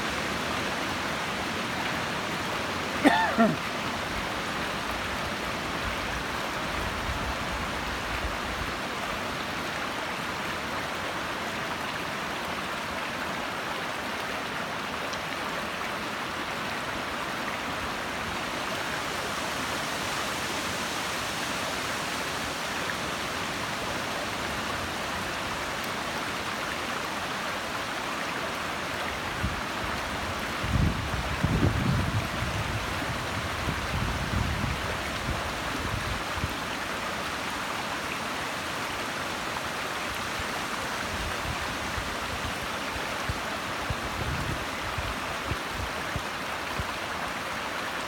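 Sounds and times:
brook babbling over rocks: 0:00.0 - 0:48.0.

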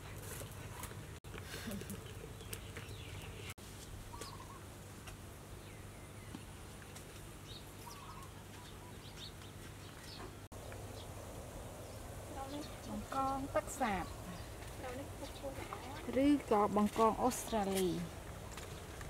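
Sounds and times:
faint bird chirps: 0:04.1 - 0:04.7, 0:07.8 - 0:09.3.

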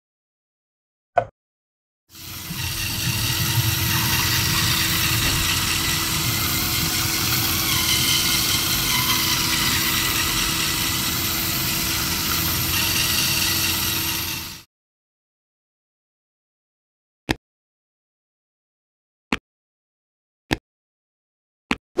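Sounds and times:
toy electric motor and gears: 0:02.1 - 0:14.7
wheel churning against foam: 0:02.2 - 0:14.6.

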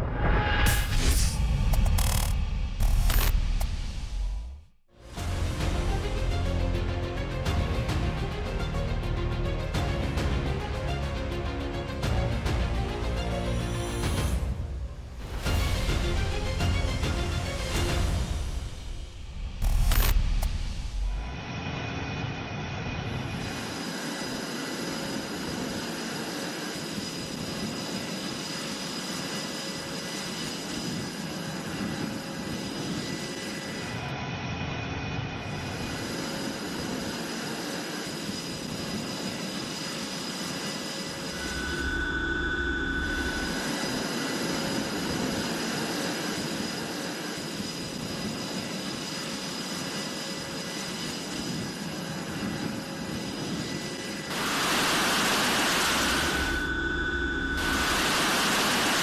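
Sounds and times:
fighter jet engines running: 0:00.0 - 0:59.0
high whining tones: 0:17.4 - 0:59.0.

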